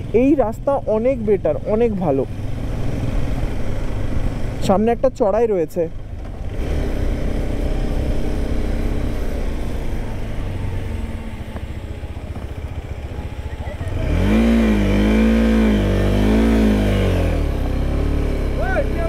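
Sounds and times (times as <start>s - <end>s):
road and wind rumble: 0.0s - 19.0s
motorcycle engine pulling uphill: 5.7s - 19.0s.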